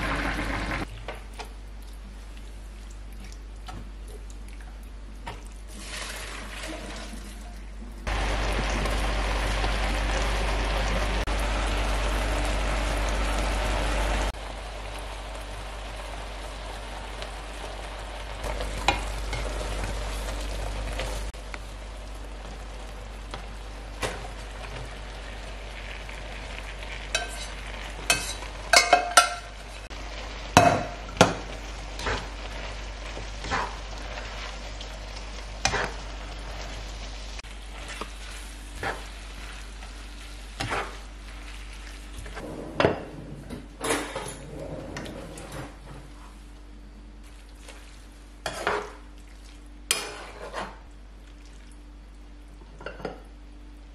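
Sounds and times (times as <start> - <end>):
sauce sizzling in a frying pan: 8.1 - 42.3.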